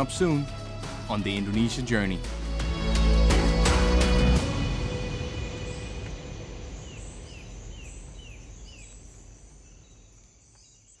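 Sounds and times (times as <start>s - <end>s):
open air background noise: 3.1s - 11.0s
bird chirping: 5.3s - 11.0s.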